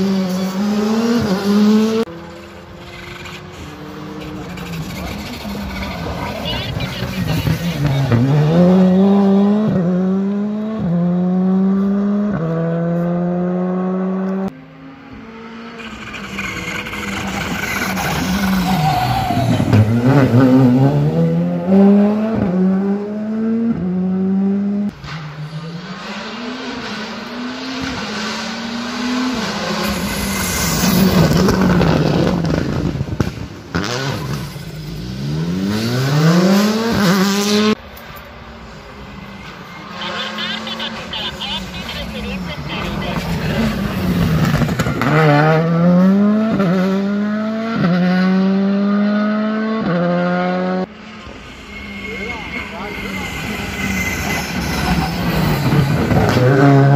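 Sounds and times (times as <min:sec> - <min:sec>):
rally car engines accelerating: 0:00.0 - 0:56.9.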